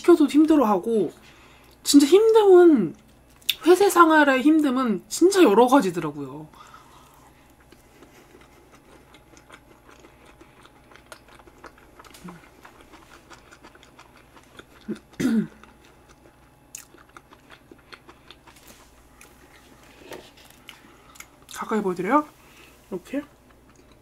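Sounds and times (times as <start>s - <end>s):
person chewing cake: 6.6s - 24.0s.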